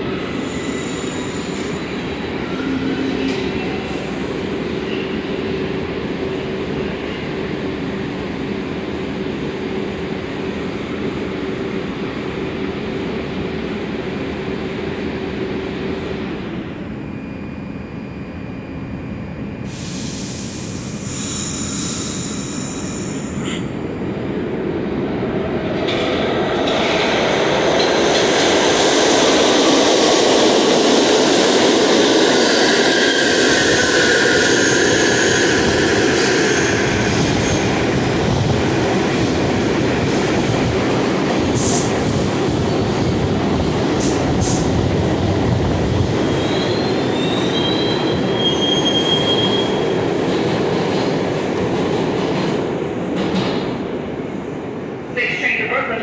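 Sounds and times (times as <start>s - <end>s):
subway train wheels rumbling: 0.0s - 56.0s
train wheel squeal: 0.2s - 5.2s, 19.7s - 23.7s, 32.3s - 37.6s, 46.2s - 50.0s.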